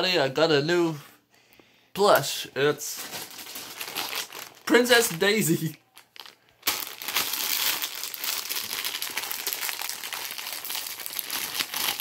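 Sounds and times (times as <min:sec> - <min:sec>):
plastic packaging crinkling: 0:02.9 - 0:12.0.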